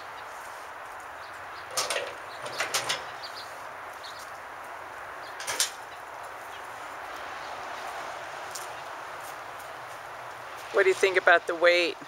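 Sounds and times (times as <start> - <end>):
metal canoe scraping and knocking: 1.7 - 3.2.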